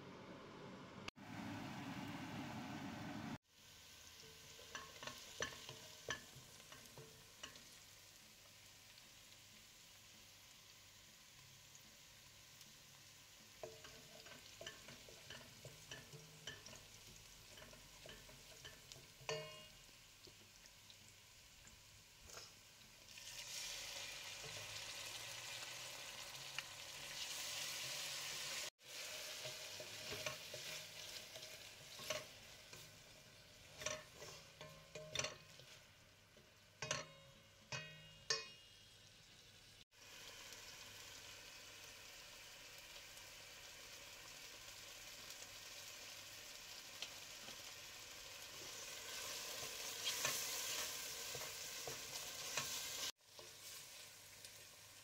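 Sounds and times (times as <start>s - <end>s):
onions sizzling in oil: 1.1s - 55.0s
wooden spoon scraping a pot: 28.9s - 35.9s.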